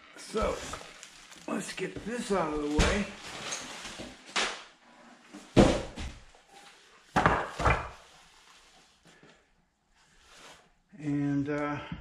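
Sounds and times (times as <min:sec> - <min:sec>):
plastic liner rustling: 0:00.2 - 0:04.5.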